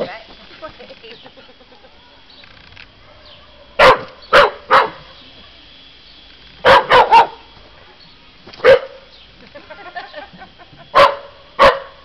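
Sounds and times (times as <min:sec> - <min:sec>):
dog barking: 0:03.1 - 0:05.0, 0:06.6 - 0:07.4, 0:08.6 - 0:09.0, 0:11.0 - 0:12.0.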